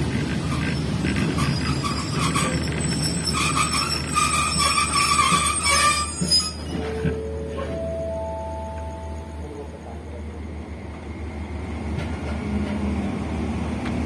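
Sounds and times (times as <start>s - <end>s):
train jolting to a halt: 0.0s - 9.6s
train rumbling: 0.0s - 14.0s
train brakes squealing: 0.5s - 9.2s.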